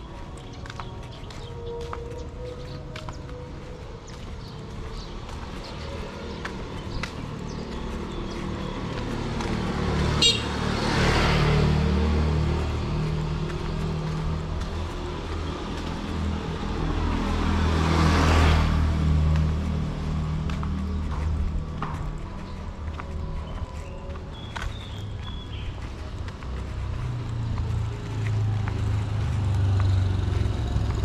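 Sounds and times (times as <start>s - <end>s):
vehicles passing close by: 0.0s - 31.0s
car horn toot: 10.2s - 10.7s.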